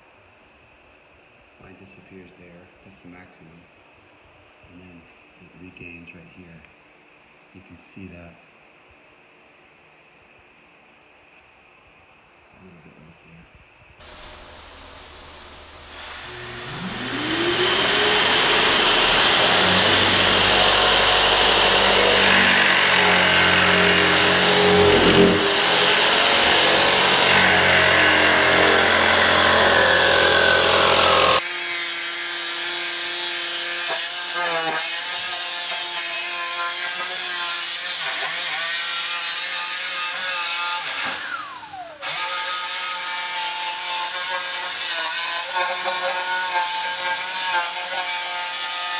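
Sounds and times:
power tool motor whining: 0:14.0 - 0:33.2.

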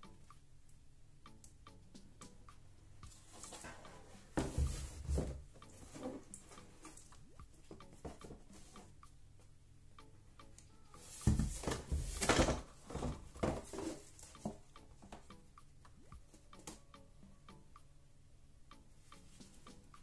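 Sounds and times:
cardboard rustling and scraping: 0:11.0 - 0:14.6
cardboard board thump: 0:11.2 - 0:13.9.

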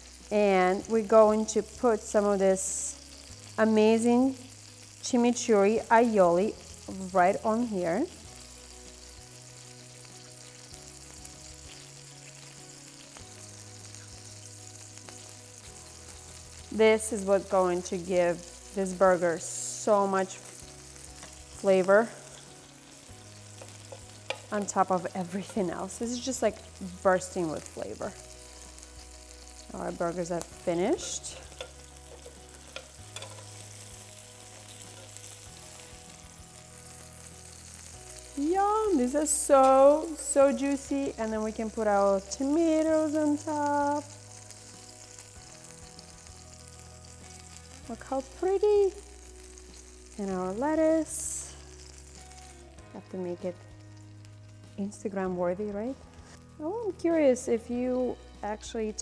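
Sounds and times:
burger patties sizzling on grill: 0:00.0 - 0:59.0
soft background music with bass: 0:00.0 - 0:59.0
metal spatula clicking on grill: 0:23.6 - 0:24.7, 0:30.9 - 0:33.6, 0:34.6 - 0:35.3.

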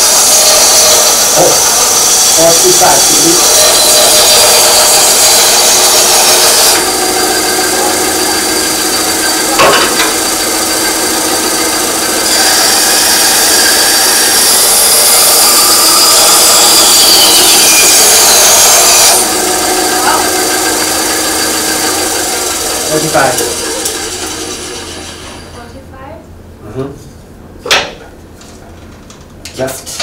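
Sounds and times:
band saw cutting wood: 0:00.0 - 0:25.6.

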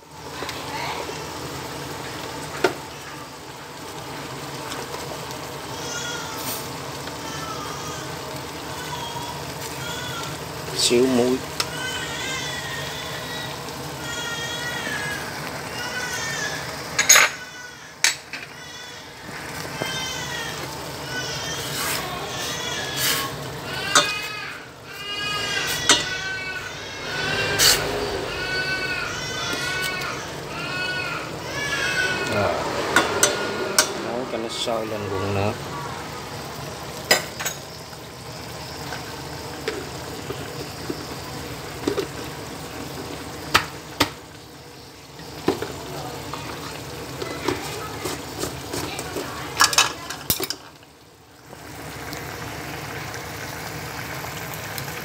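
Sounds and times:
gas burner hissing and humming: 0:00.0 - 0:55.0
faint high animal calls: 0:11.2 - 0:36.2.

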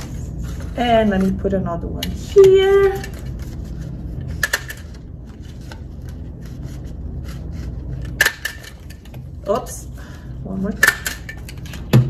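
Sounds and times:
paper rustling: 0:00.0 - 0:01.4.

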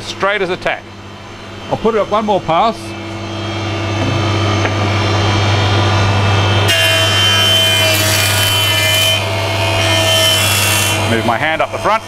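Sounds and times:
jointer motor hum: 0:03.1 - 0:11.8
board being planed: 0:06.6 - 0:11.3.

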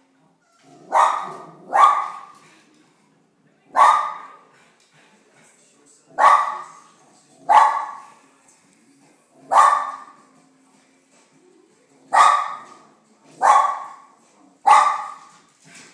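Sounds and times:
small dog barking: 0:00.6 - 0:02.3, 0:03.7 - 0:04.4, 0:06.2 - 0:06.8, 0:07.5 - 0:08.1, 0:09.5 - 0:10.2, 0:12.1 - 0:12.8, 0:13.4 - 0:15.3.

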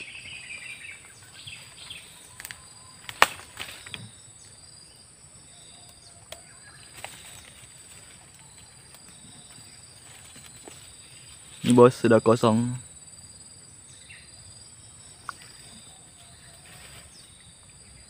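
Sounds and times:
bamboo stems cracking: 0:01.7 - 0:04.2, 0:05.8 - 0:10.9.

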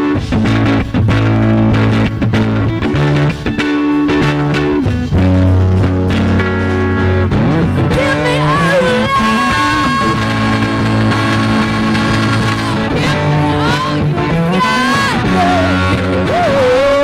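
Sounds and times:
rock band playing: 0:00.0 - 0:17.0
woman singing: 0:07.9 - 0:17.0.

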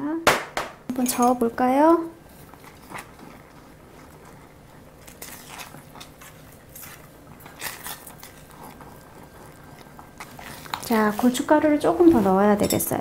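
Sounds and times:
wooden spatula scraping a pot: 0:10.0 - 0:12.8.

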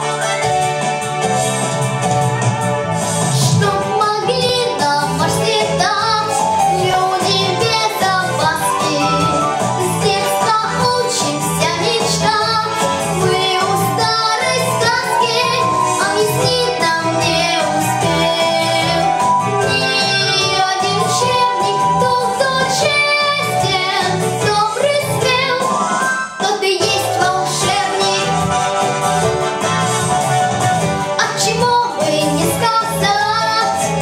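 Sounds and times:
backing music with beat: 0:00.0 - 0:34.0
girl singing: 0:03.5 - 0:25.7, 0:26.4 - 0:28.4, 0:31.2 - 0:33.9.

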